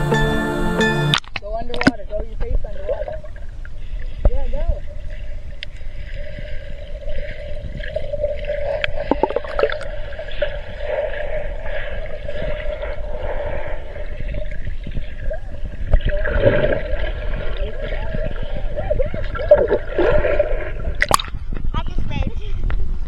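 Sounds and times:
water bubbling and sloshing: 1.1s - 21.7s
muffled underwater water rumble: 1.6s - 23.0s.

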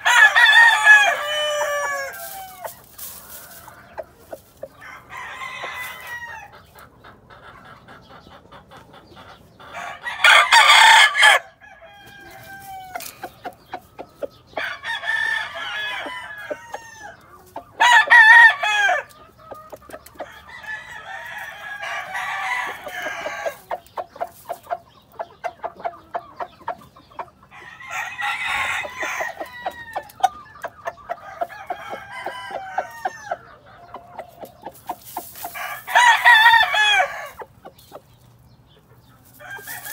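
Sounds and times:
roosters crowing: 0.0s - 6.7s, 9.6s - 24.7s, 27.4s - 37.6s, 39.2s - 39.9s.

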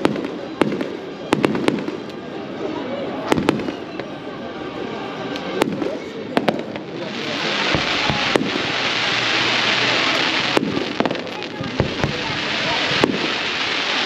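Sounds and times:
hissing crackle of sparks: 6.6s - 14.0s.

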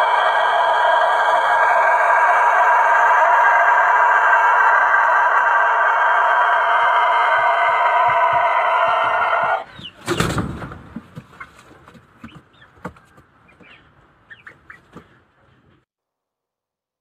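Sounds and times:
rooster crowing: 0.0s - 9.7s
wings flapping: 10.0s - 12.4s
soft clucks and chirps: 12.2s - 15.2s.

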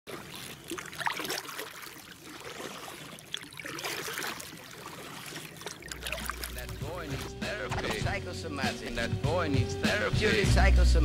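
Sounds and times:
light water splashes: 0.1s - 8.2s
water trickling along canoe: 0.1s - 8.2s.

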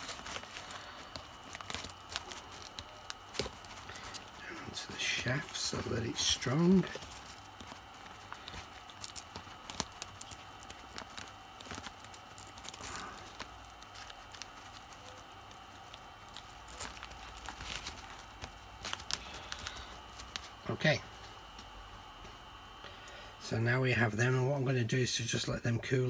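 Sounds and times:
plastic clicking and crinkling: 0.0s - 20.6s
kite fabric rustling: 0.0s - 22.0s.

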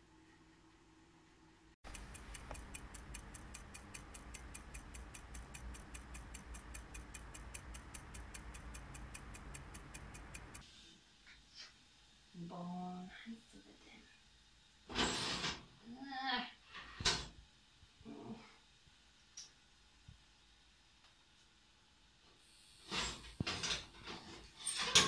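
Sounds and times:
timer ticking: 1.8s - 10.6s
low hum: 1.9s - 10.6s.

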